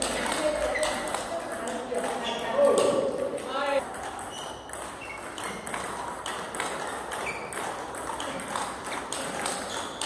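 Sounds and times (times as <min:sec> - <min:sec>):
table tennis ball pinging: 0:00.0 - 0:10.0.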